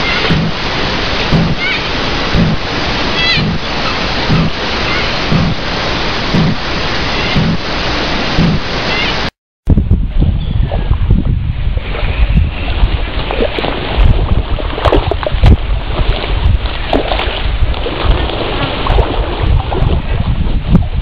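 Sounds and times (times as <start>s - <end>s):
wind buffeting microphone: 0.0s - 8.9s, 9.7s - 21.0s.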